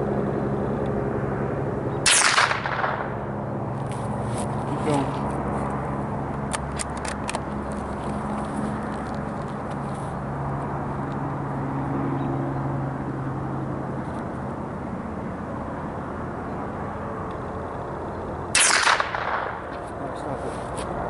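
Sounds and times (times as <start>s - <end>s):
low hum: 0.0s - 21.0s
rifle shot crack: 2.0s - 3.2s, 18.5s - 19.8s.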